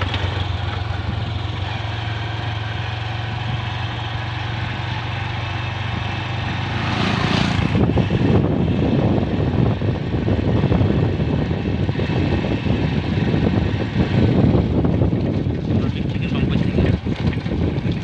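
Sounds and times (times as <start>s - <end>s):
motorcycle engine running: 0.0s - 18.0s
motorcycle passing: 0.0s - 18.0s
wind on microphone: 5.8s - 18.0s.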